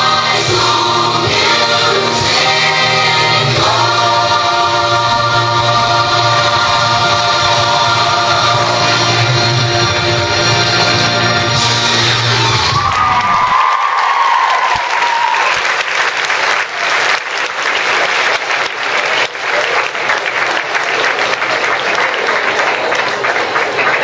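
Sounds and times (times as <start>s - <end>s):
audience applauding: 12.0s - 24.0s.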